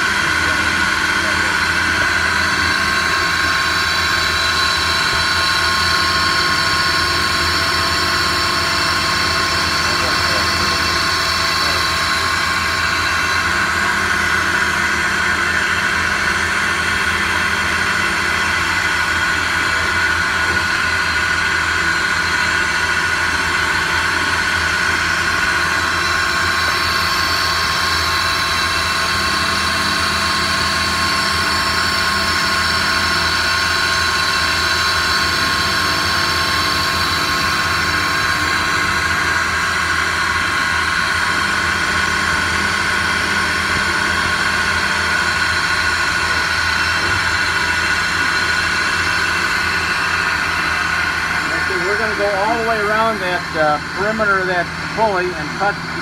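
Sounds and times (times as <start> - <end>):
lathe spindle whine: 0.0 - 56.0
machine hum: 0.0 - 56.0.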